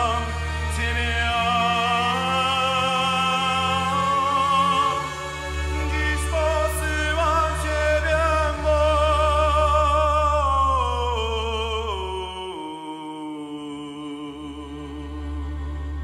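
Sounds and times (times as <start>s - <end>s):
orchestra playing: 0.0s - 12.5s
choir singing: 0.0s - 16.0s.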